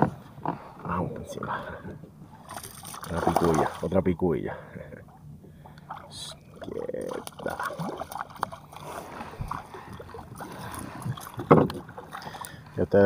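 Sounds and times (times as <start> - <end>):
water splashing beside kayak: 2.3 - 4.0, 5.0 - 13.0.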